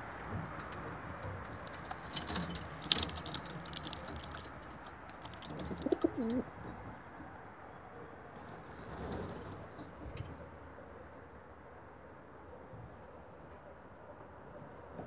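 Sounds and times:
pigeon cooing: 0:05.2 - 0:06.5.

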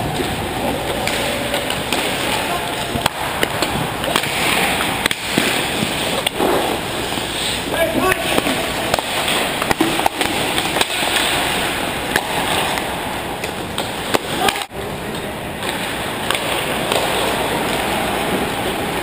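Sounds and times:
clacks of sticks and puck: 0:00.1 - 0:06.8, 0:07.8 - 0:18.5
skates scraping ice: 0:00.1 - 0:14.7.

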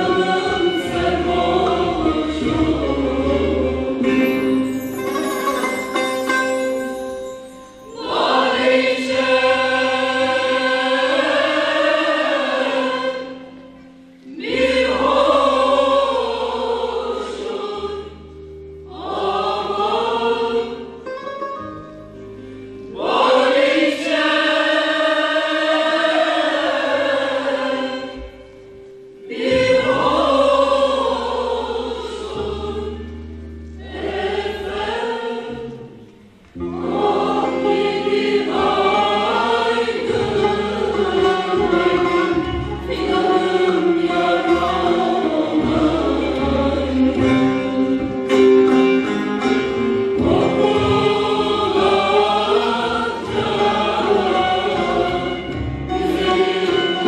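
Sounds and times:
mixed choir singing folk song: 0:00.0 - 0:57.0.

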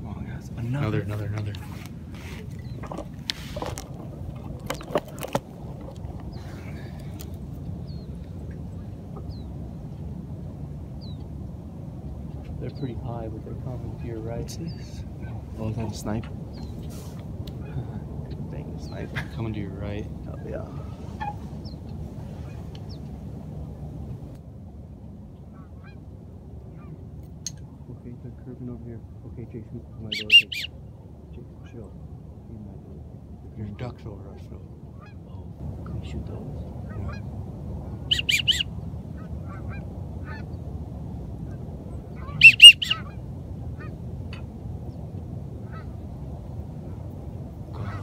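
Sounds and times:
low background noise: 0:00.0 - 0:48.0
steady low rumble: 0:00.0 - 0:48.0
geese honking faintly: 0:20.6 - 0:23.1, 0:25.4 - 0:27.1, 0:27.9 - 0:32.0, 0:33.8 - 0:40.7, 0:41.4 - 0:44.6, 0:45.6 - 0:48.0
goose call honks: 0:30.1 - 0:30.7, 0:36.9 - 0:37.3, 0:38.1 - 0:40.5, 0:42.2 - 0:43.2, 0:47.8 - 0:48.0.

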